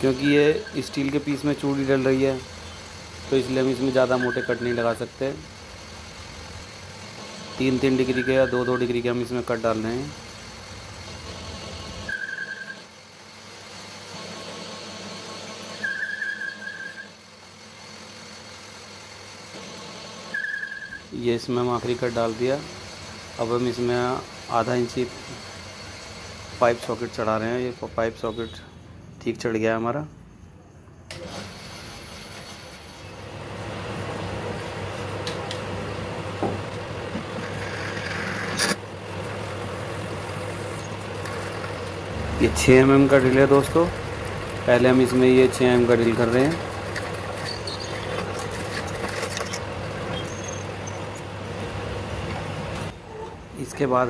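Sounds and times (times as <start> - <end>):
lathe running: 0.0 - 28.4, 31.1 - 53.0
high squeal from cutting tool: 0.3 - 1.0, 3.9 - 5.0, 7.8 - 9.0, 12.0 - 12.9, 15.7 - 17.2, 20.3 - 21.1, 47.4 - 48.2, 49.4 - 51.0
metal lathe humming: 31.2 - 53.2.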